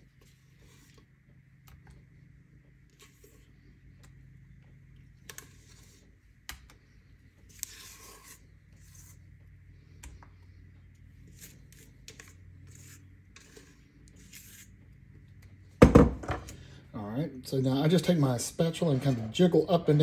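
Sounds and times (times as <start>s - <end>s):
spatula scraping a metal bowl: 5.2s - 6.2s, 7.5s - 9.4s, 11.2s - 14.8s, 18.8s - 19.6s.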